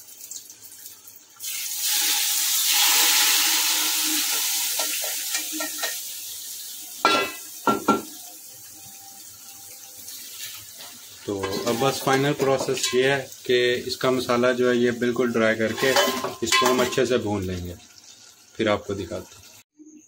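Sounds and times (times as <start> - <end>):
hot oil sizzling: 0.0 - 20.0
metal utensils clinking: 4.7 - 6.1, 7.0 - 8.2, 11.4 - 13.2, 15.6 - 17.2.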